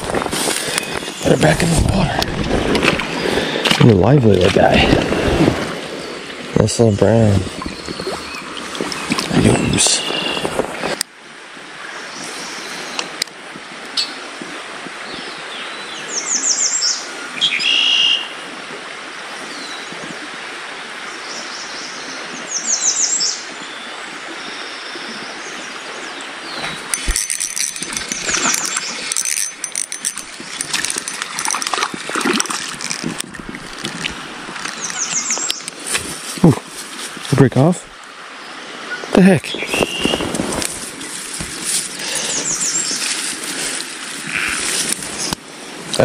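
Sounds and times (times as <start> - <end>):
creek water rushing: 0.0 - 46.0
songbird trilling: 7.6 - 10.5, 34.7 - 35.7, 42.1 - 43.1
rustling through tall grass: 26.6 - 37.4, 39.6 - 45.9.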